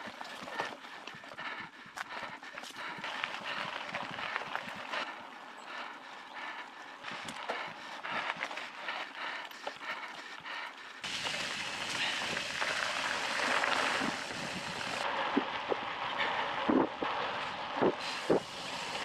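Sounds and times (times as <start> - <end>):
bike tyres rolling over gravel: 3.0 - 5.3, 11.0 - 19.0
wind on microphone: 13.3 - 19.0.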